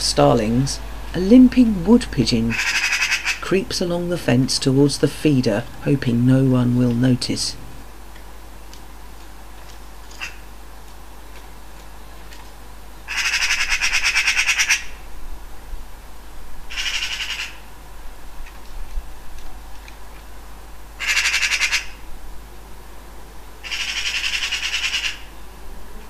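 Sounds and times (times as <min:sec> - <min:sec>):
magpie chattering: 0:02.4 - 0:03.5, 0:13.1 - 0:15.0, 0:16.7 - 0:17.7, 0:21.0 - 0:22.0, 0:23.6 - 0:25.3.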